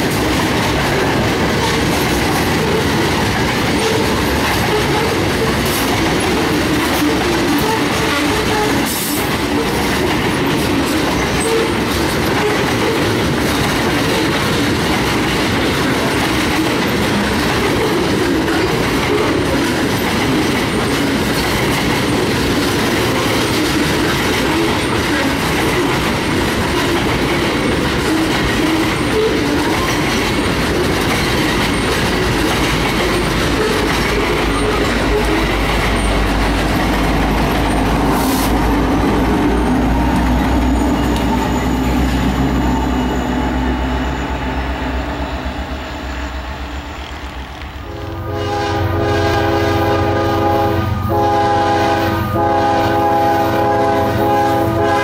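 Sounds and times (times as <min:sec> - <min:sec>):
train wheels clacking on rail joints: 0:00.0 - 0:43.2
diesel locomotive engine rumble: 0:00.0 - 0:55.0
locomotive air horn: 0:07.0 - 0:09.7, 0:47.8 - 0:55.0.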